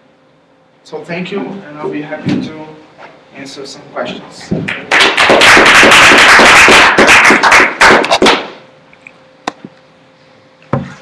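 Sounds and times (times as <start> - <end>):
audience applauding: 4.7 - 8.6.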